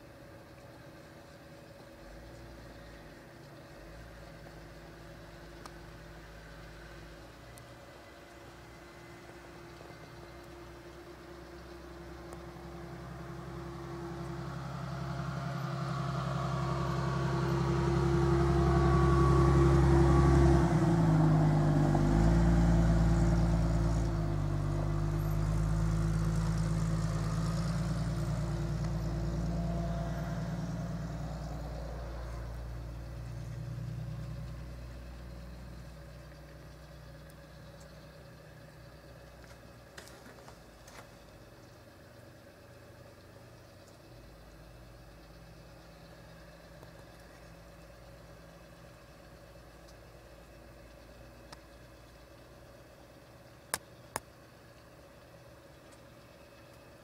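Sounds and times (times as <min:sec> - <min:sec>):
vehicle engine passing by: 0:06.1 - 0:39.1.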